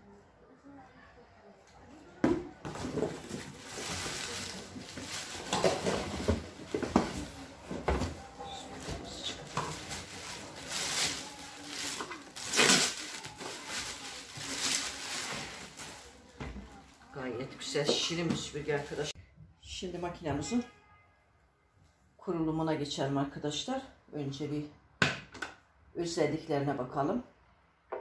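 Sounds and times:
plastic wrapping rustling: 2.6 - 17.3, 18.4 - 19.2.

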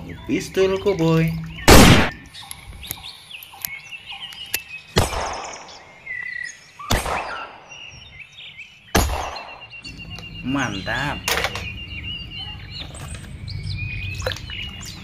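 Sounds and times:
faint bird chirps: 0.0 - 15.0
revolver shots: 1.7 - 2.2.

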